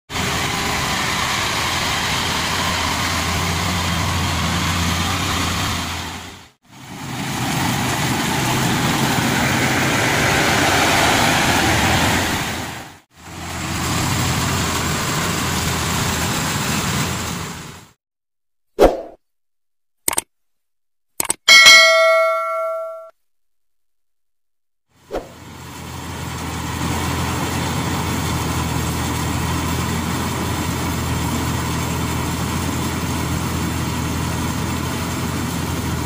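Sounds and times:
combine harvester engine drone: 0:00.1 - 0:12.4, 0:13.2 - 0:17.9, 0:25.3 - 0:36.0.

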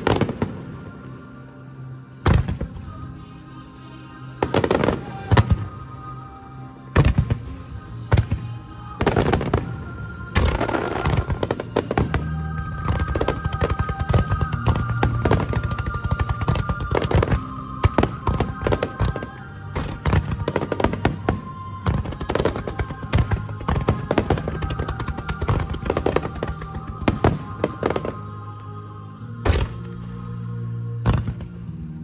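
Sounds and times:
music with long held notes: 0:00.0 - 0:32.0
fireworks bangs: 0:10.4 - 0:28.2.

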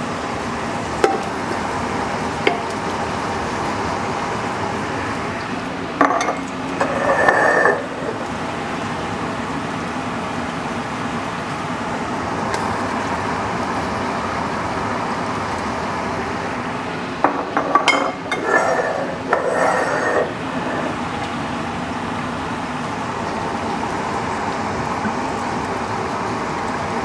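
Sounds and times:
glass bottles clinking on metal pot: 0:06.0 - 0:06.4, 0:17.6 - 0:18.4.

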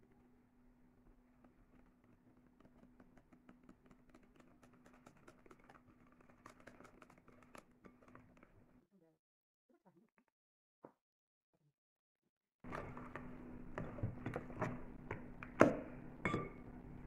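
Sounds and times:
whisk clicking against glass bowl: 0:02.7 - 0:08.5.

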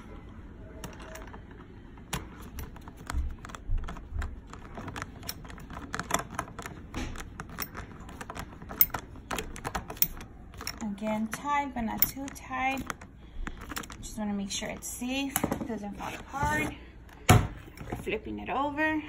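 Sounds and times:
screwdriver clicking on screw: 0:11.9 - 0:13.0.

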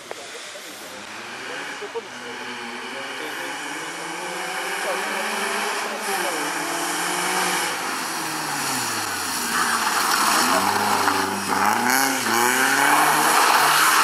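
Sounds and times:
rally car engine revving: 0:00.0 - 0:14.0.

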